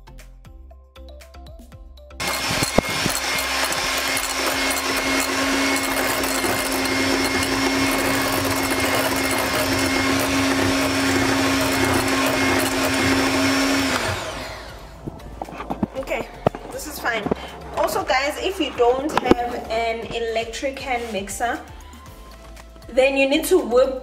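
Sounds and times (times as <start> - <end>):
electric hand mixer running: 2.2 - 19.6.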